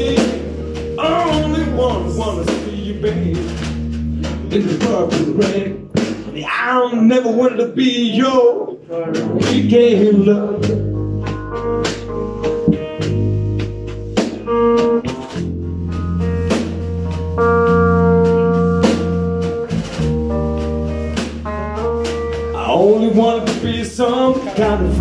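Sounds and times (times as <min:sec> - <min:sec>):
electric bass line: 0:00.0 - 0:06.5, 0:09.1 - 0:25.0
electric guitar sustained notes: 0:24.5 - 0:25.0.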